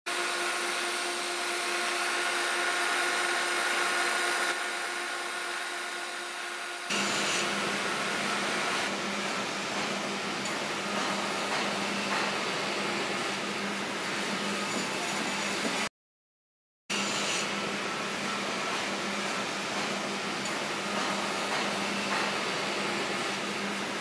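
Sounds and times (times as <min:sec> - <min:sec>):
welding arc hiss and buzz: 0:00.1 - 0:15.9.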